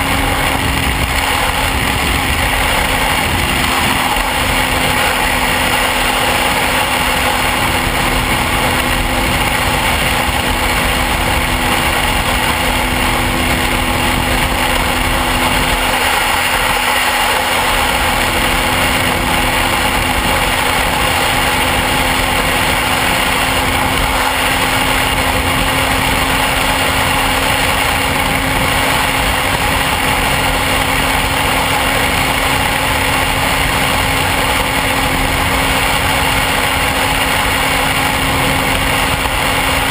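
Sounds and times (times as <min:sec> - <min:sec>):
motorcycle engine running: 0:00.0 - 0:39.9
wind noise on microphone: 0:00.0 - 0:39.9.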